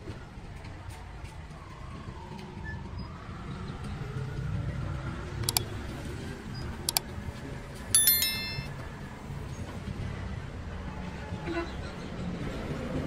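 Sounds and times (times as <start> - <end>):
sharp clicks: 5.4 - 5.7
bright metallic ring: 8.0 - 8.8.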